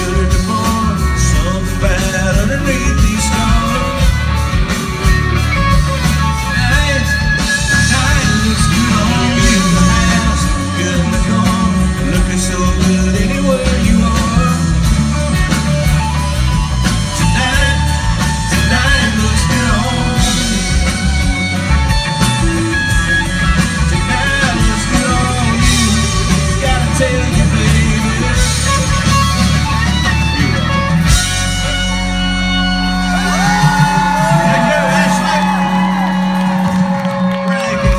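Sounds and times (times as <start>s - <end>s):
live country band playing: 0.0s - 37.9s.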